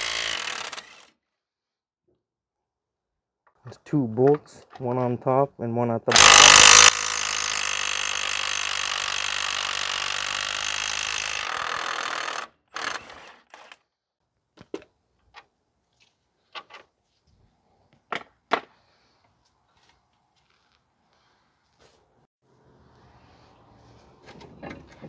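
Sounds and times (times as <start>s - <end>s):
power tool spinning bolt: 6.1s - 9.8s.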